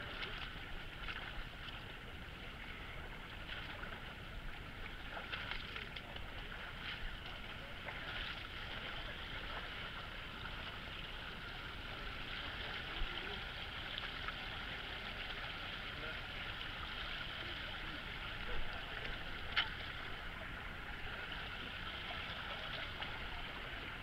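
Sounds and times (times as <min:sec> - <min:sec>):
feet wading splashing: 0:00.0 - 0:01.9
creek water over rocks: 0:00.0 - 0:24.0.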